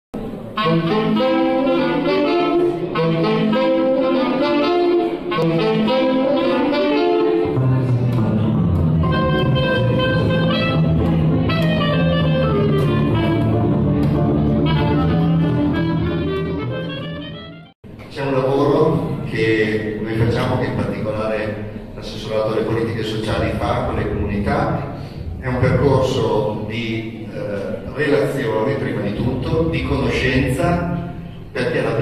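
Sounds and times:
clarinet melody: 0.4s - 17.8s
electric guitar: 0.5s - 17.4s
saxophone melody: 0.5s - 17.7s
double bass line: 0.6s - 17.7s.

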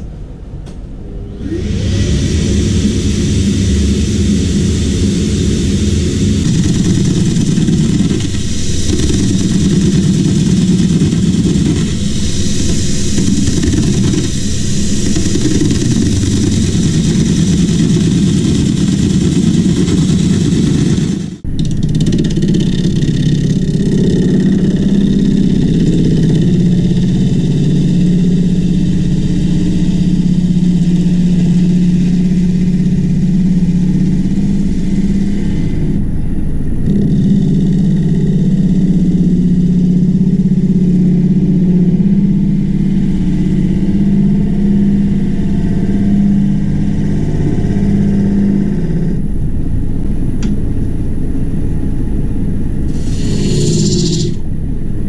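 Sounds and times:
wood lathe droning: 1.4s - 36.0s, 36.8s - 49.2s, 52.9s - 54.4s
gouge hissing into wood: 52.9s - 54.4s.

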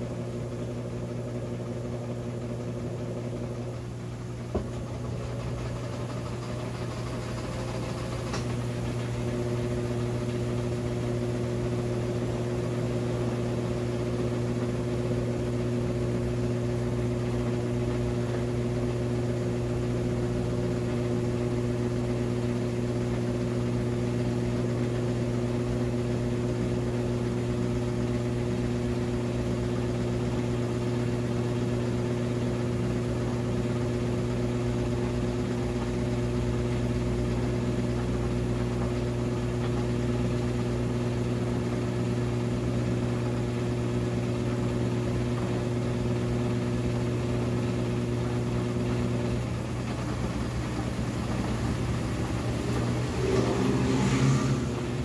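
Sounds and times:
washing machine spinning: 0.0s - 55.0s.

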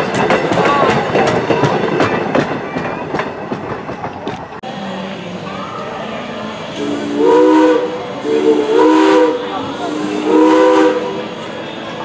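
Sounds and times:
steam locomotive chime whistle: 6.8s - 11.3s.

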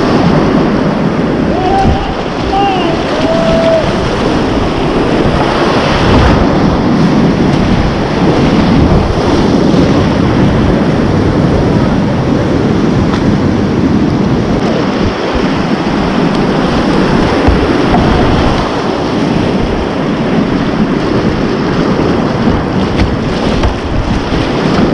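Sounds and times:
whitewater rapids rushing: 0.0s - 13.1s, 14.2s - 24.9s
water splashing close: 1.4s - 6.8s, 14.6s - 20.0s, 21.0s - 24.9s.

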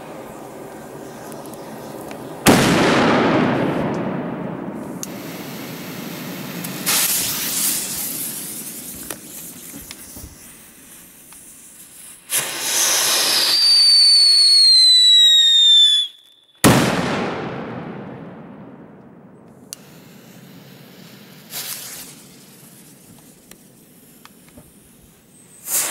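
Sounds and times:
firecracker bang: 0.0s - 10.5s, 16.6s - 23.2s
firecracker hissing and whistling: 0.0s - 17.0s, 19.4s - 25.9s.

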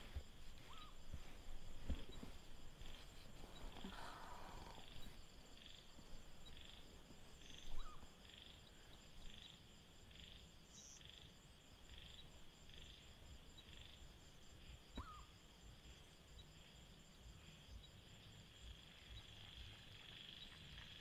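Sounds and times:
high insect trill: 0.0s - 21.0s
frog calling softly: 0.6s - 1.0s, 2.8s - 6.8s, 7.4s - 11.3s, 14.9s - 15.4s.

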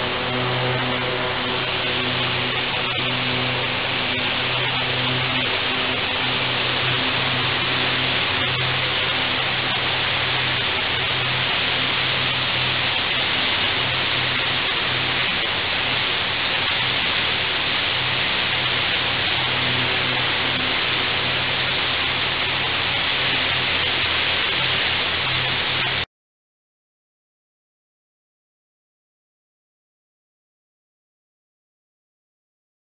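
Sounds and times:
low hum: 0.0s - 26.1s
high-pressure water jet hitting steel: 2.2s - 26.0s.

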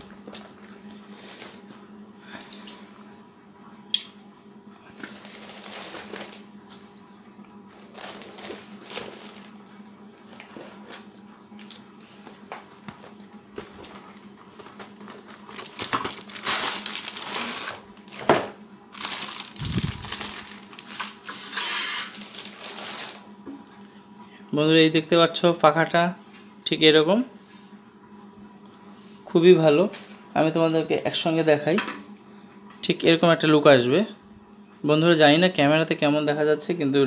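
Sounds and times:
cardboard packaging rustling: 5.0s - 6.4s, 7.8s - 9.5s, 13.6s - 23.3s.

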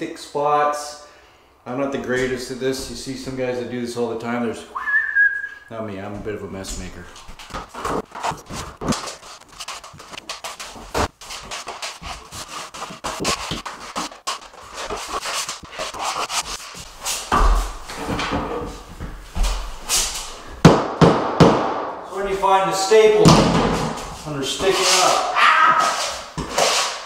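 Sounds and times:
trowel scraping adhesive: 7.4s - 17.3s, 24.0s - 27.0s.

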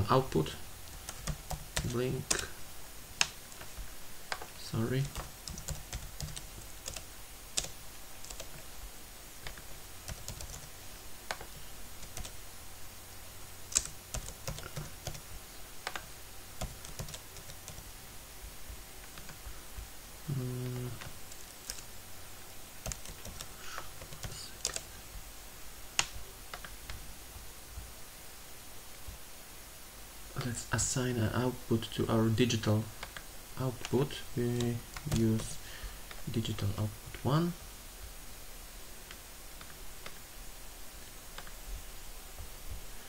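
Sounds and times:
computer keyboard typing: 0.9s - 2.5s, 5.0s - 8.6s, 9.4s - 10.7s, 11.3s - 12.4s, 13.7s - 15.2s, 15.8s - 17.9s, 21.0s - 21.9s, 22.8s - 24.9s.

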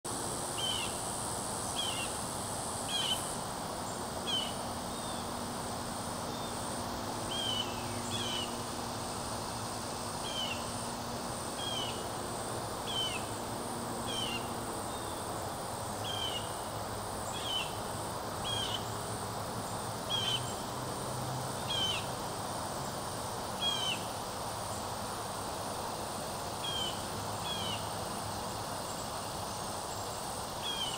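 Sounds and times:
high-pitched insect drone: 0.1s - 30.9s.

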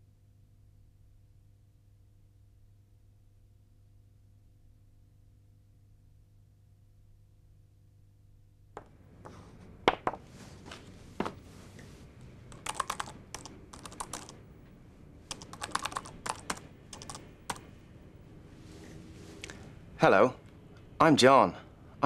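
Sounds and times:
keyboard typing: 12.5s - 14.4s, 15.3s - 17.7s.

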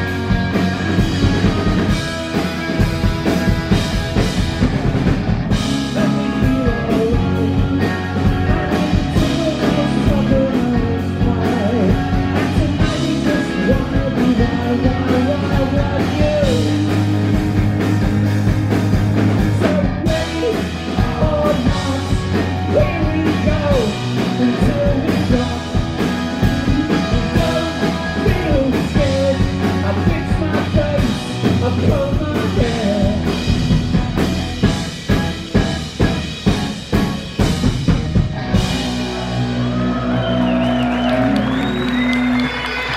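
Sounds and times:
drum kit beat: 0.0s - 39.4s
bass guitar: 0.0s - 42.9s
electric guitar: 0.0s - 42.9s
man singing lead: 5.5s - 17.9s, 19.2s - 33.8s.

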